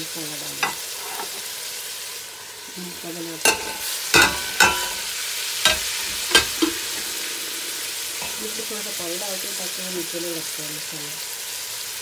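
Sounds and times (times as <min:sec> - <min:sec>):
meat sizzling in hot oil: 0:00.0 - 0:12.0
utensils knocking against pot: 0:03.4 - 0:07.1, 0:08.2 - 0:08.5.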